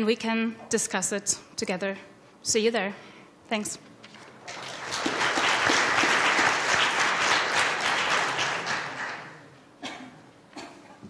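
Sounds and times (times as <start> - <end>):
audience applauding: 4.4 - 9.4.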